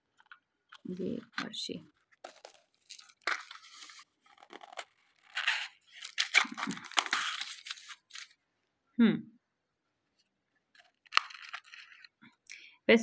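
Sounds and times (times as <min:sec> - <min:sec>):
plastic and foil wrapping crinkling: 0:00.2 - 0:08.4, 0:10.7 - 0:12.2.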